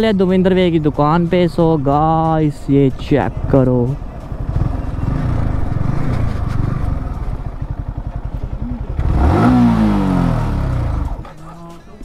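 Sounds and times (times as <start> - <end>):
motorcycle engine idling: 0.4 - 12.0
engine revving: 3.2 - 11.3.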